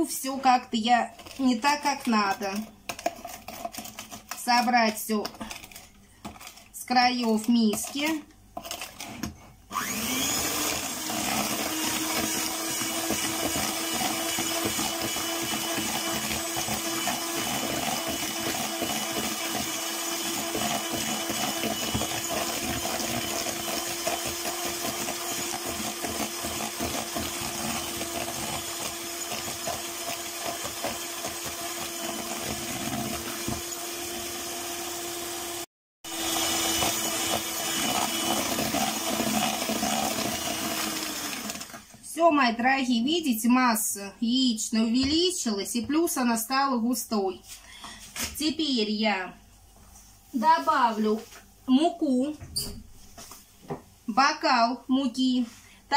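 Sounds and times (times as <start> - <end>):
electric hand mixer whipping: 9.7 - 41.9.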